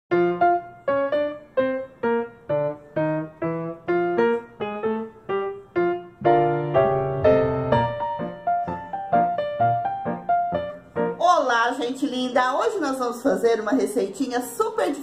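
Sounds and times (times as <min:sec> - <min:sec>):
piano music: 0:00.1 - 0:13.2.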